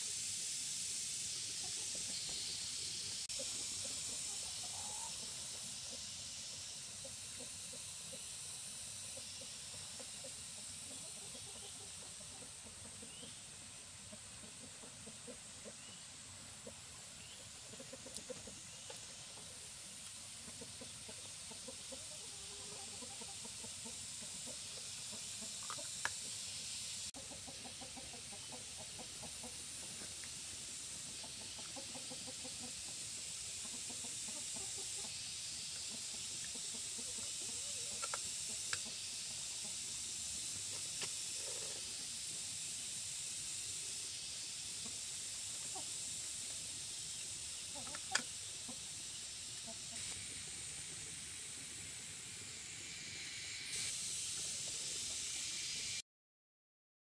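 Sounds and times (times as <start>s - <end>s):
steady high hiss: 0.0s - 56.0s
chickens clucking: 0.4s - 50.3s
sharp clicks: 38.0s - 38.9s.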